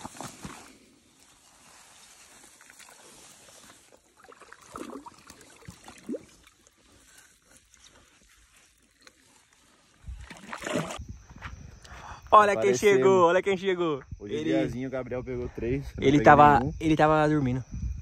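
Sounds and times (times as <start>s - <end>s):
flip-flop footsteps on grass: 0.0s - 4.1s
leaves and stems rustling: 0.0s - 4.4s, 5.4s - 10.2s.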